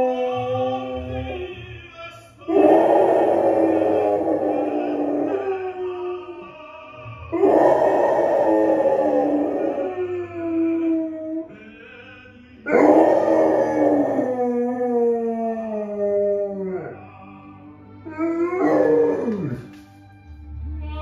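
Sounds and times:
dog howling: 0.0 - 1.6, 2.5 - 6.5, 7.3 - 11.6, 12.7 - 17.0, 18.1 - 19.7
tenor opera singing: 0.0 - 19.8.

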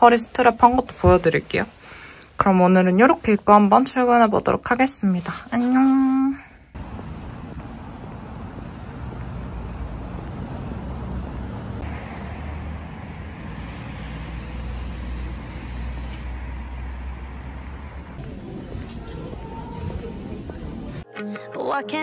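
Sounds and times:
low rumble of traffic: 6.7 - 21.0.

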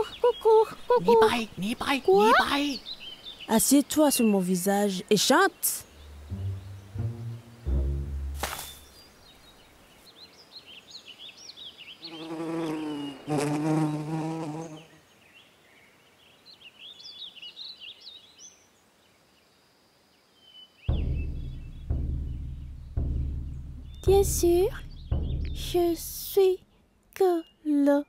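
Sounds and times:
small birds chirping: 0.0 - 28.0
insect buzzing: 12.0 - 15.0.

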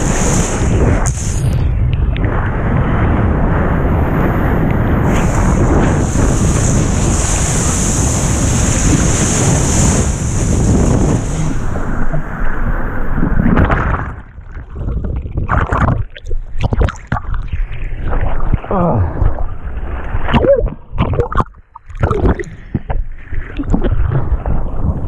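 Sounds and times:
rush of wind and water spray: 0.0 - 25.0
water splashes: 5.1 - 25.0
muffled underwater sound: 11.2 - 25.0.

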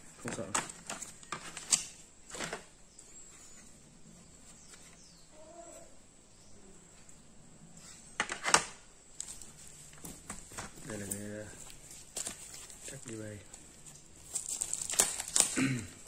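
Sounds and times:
faint animal call: 5.2 - 6.9
packaging rustling: 9.1 - 16.0.

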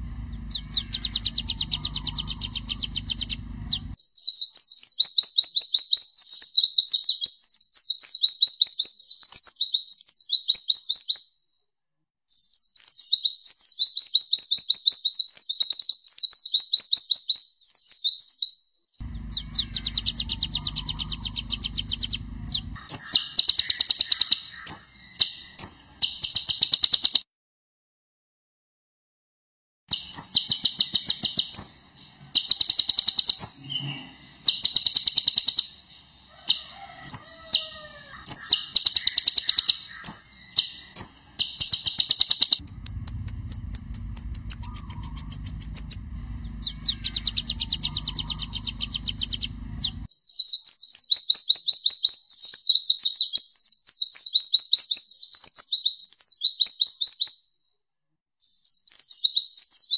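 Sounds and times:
low hum: 0.0 - 4.0, 19.0 - 26.4, 29.9 - 37.6, 38.3 - 50.1
sunbird trilling and chattering: 0.0 - 5.7, 19.0 - 27.2, 29.9 - 50.5.

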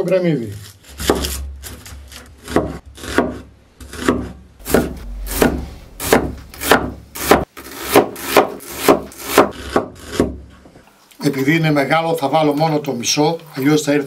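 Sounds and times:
knife slicing onion on board: 0.6 - 4.9, 7.2 - 10.5.

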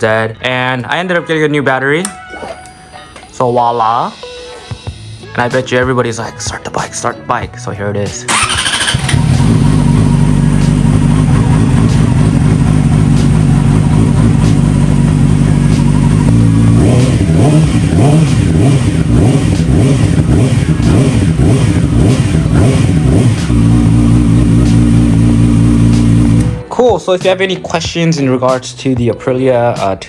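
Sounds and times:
motorcycle starter cranking: 8.3 - 10.4
motorcycle engine idling: 8.3 - 26.6
motorcycle throttle blips: 8.3 - 26.6.

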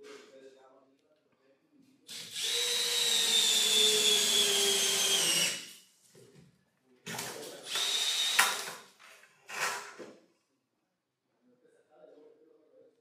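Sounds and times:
power drill whining: 2.1 - 5.7, 7.6 - 8.8.

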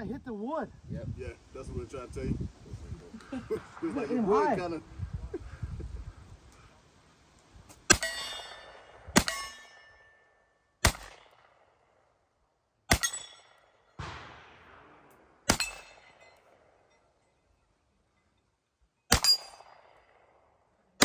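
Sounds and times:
gunshots: 7.9 - 9.7, 10.8 - 11.6, 12.9 - 13.4, 14.0 - 16.8, 19.1 - 20.3
steel target ringing clang: 7.9 - 11.2, 12.9 - 17.2, 19.1 - 19.9.

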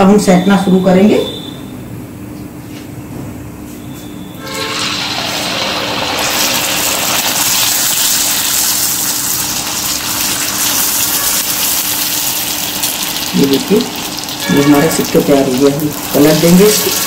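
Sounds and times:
dough sizzling in hot oil: 4.4 - 17.0.

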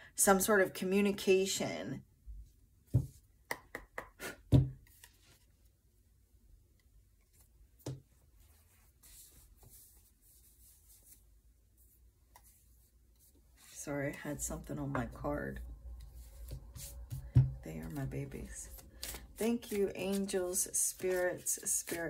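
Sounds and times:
faint rustle of cards: 4.8 - 5.7, 7.2 - 14.2, 16.0 - 22.0.

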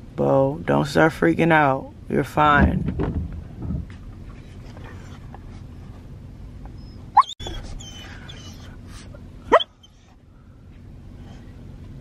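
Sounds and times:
dog whining: 6.6 - 10.2.

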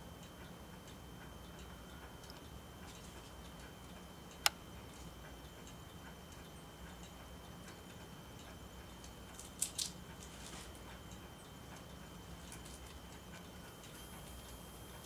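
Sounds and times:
low steady hum: 0.0 - 15.0
squirrel gnawing corn: 9.0 - 10.9.

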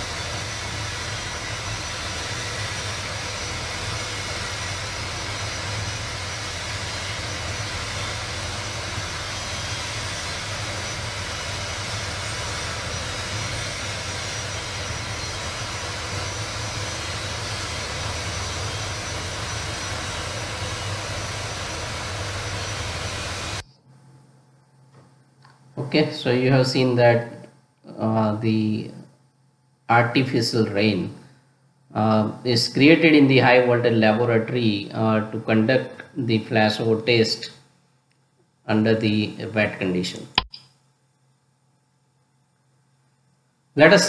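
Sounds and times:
water spray hiss: 0.0 - 23.6
low even hum: 0.0 - 44.0.

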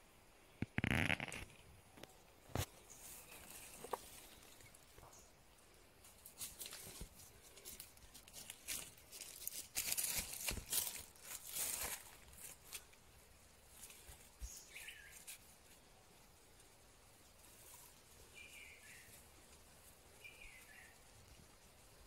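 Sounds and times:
undergrowth rustling and crackling: 0.6 - 22.0.

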